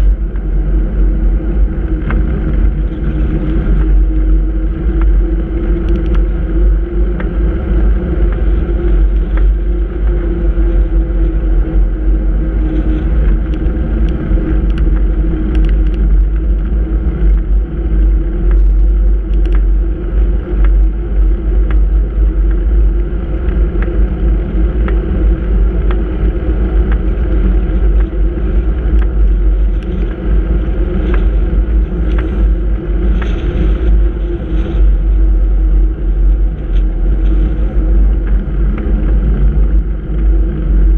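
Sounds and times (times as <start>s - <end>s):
wind and road rumble on microphone: 0.0s - 40.9s.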